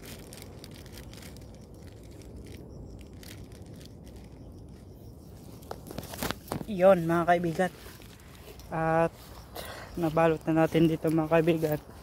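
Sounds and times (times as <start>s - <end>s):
plastic bag crinkling: 0.0s - 4.8s, 5.4s - 8.8s.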